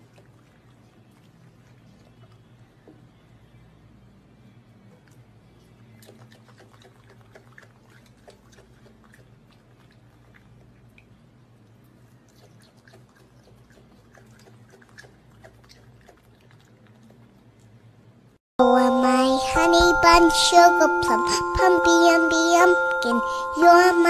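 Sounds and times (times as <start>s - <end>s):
raccoon chewing fruit: 5.0s - 11.1s, 11.8s - 17.8s.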